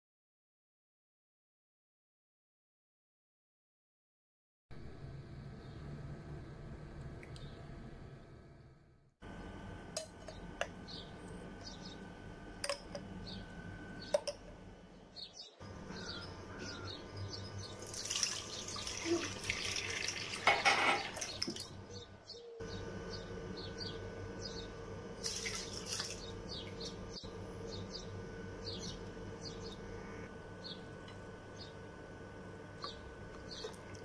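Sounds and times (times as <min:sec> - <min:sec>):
steady hum: 0:04.7 - 0:18.9, 0:21.2 - 0:34.0
milk pouring into metal pot: 0:17.8 - 0:21.6.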